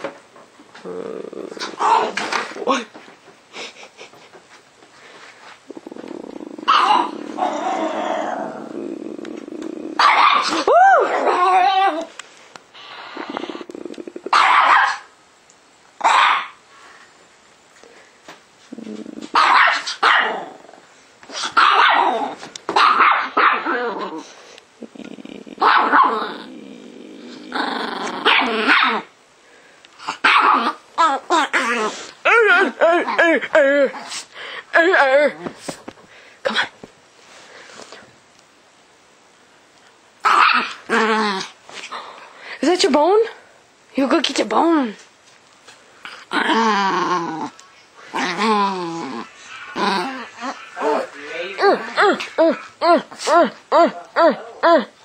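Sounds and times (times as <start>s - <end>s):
dog growling: 0.7s - 2.6s, 5.7s - 12.1s, 12.9s - 14.4s, 20.2s - 22.4s, 23.5s - 29.1s, 40.2s - 42.2s, 46.0s - 55.0s
dog yapping: 6.7s - 7.6s, 10.0s - 12.1s, 14.3s - 15.1s, 16.0s - 16.6s, 19.3s - 20.4s, 21.5s - 23.8s, 28.2s - 29.1s, 30.2s - 32.6s, 40.2s - 40.8s.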